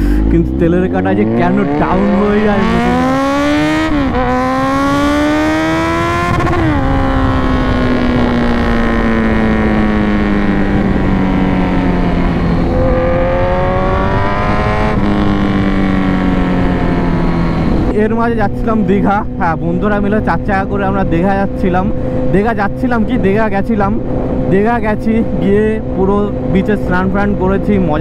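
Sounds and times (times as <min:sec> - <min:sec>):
motorcycle engine pulling hard: 0:00.0 - 0:22.4
rush of wind: 0:00.0 - 0:28.0.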